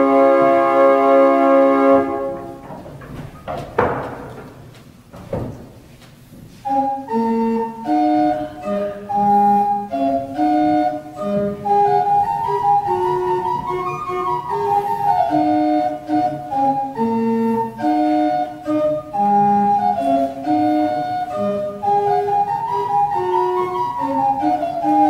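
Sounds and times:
pipe organ playing: 0:00.0 - 0:05.7, 0:06.6 - 0:25.0
soft room noises: 0:00.0 - 0:25.0.

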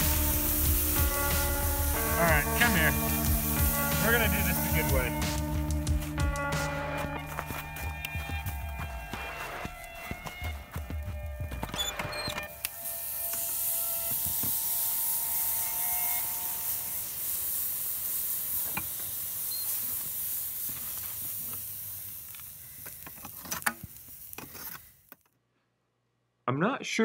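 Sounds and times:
furnace burner hissing and roaring: 0:00.0 - 0:05.9, 0:12.4 - 0:25.1.

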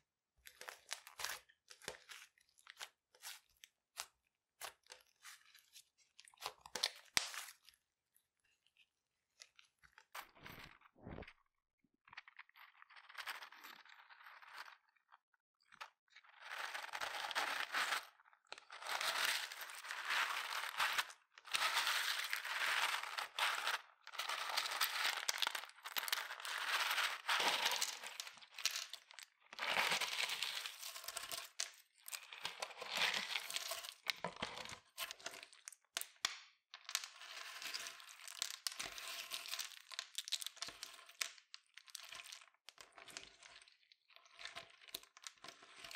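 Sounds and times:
seed shells crackling in slime: 0:36.9 - 0:43.2.

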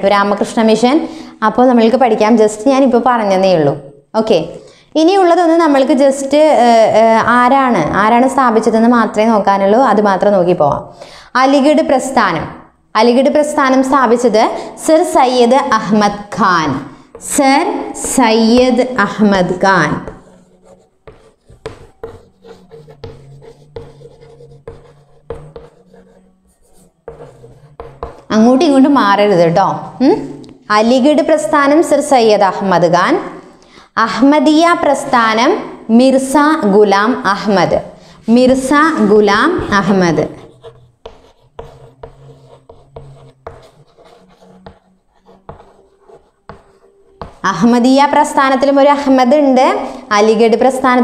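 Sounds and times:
chalk tapping and scraping: 0:16.7 - 0:28.5, 0:38.4 - 0:47.8.

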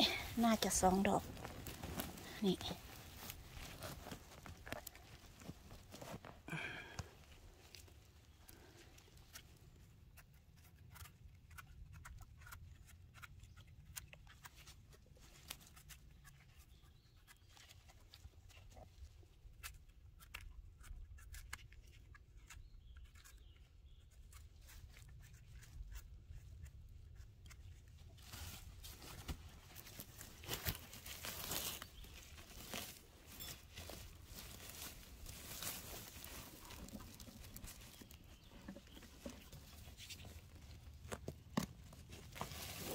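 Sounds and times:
dry forest litter crackling: 0:00.0 - 0:09.9, 0:28.0 - 0:42.9.

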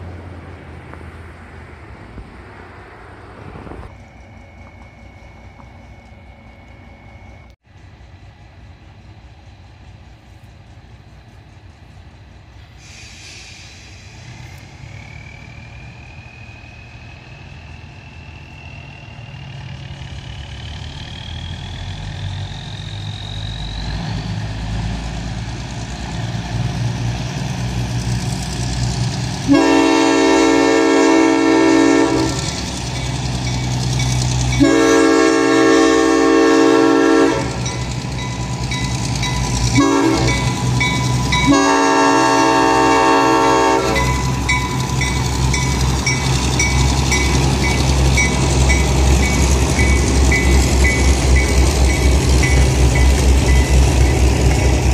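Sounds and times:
diesel locomotive engine rumble: 0:00.0 - 0:54.9
grade crossing signal: 0:00.0 - 0:54.9
long rising whine: 0:13.3 - 0:26.6
locomotive horn blasts: 0:29.5 - 0:32.5, 0:34.5 - 0:37.8, 0:39.7 - 0:44.5.

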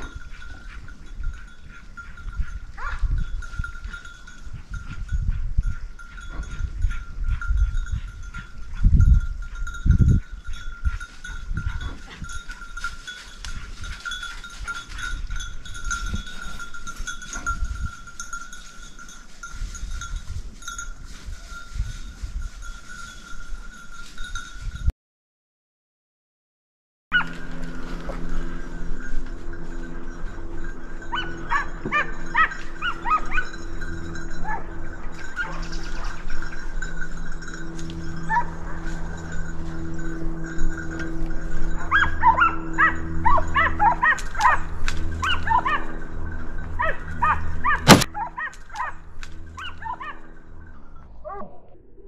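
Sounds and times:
bell ringing: 0:00.0 - 0:24.9, 0:27.2 - 0:51.3
low bumps and rumble: 0:27.2 - 0:52.0.

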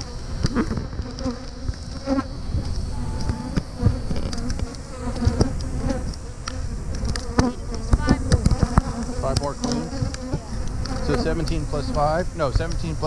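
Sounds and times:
bees buzzing: 0:00.0 - 0:13.0
wind rumbling on microphone: 0:00.0 - 0:13.0
sharp ticks: 0:02.6 - 0:13.0.

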